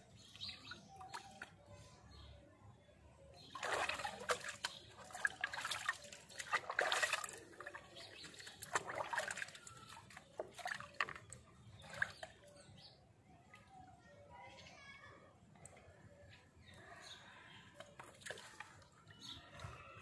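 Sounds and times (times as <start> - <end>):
wet hair squelching: 3.5 - 11.0
water dripping into tub: 3.5 - 12.4.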